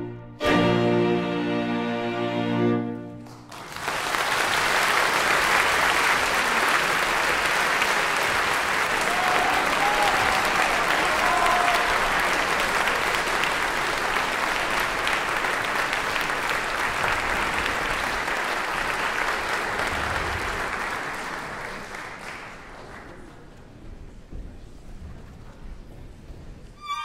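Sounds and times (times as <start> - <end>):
audience applauding: 3.2 - 23.8.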